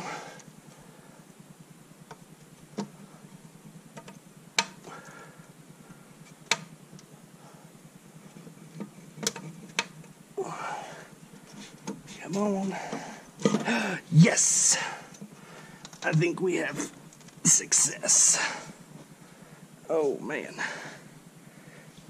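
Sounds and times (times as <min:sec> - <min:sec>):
sharp knocks and clicks on metal: 0:08.8 - 0:10.1.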